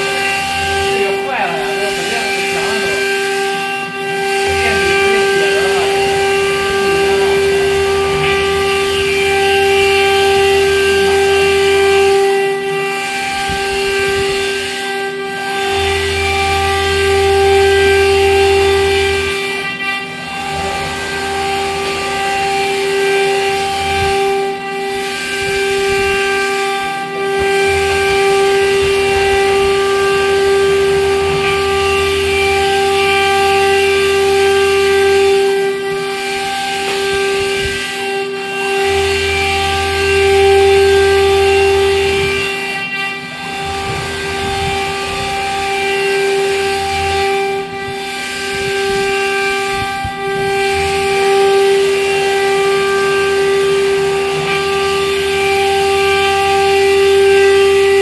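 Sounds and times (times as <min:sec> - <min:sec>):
low hum: 0:00.0 - 0:58.0
router spindle whining: 0:00.0 - 0:58.0.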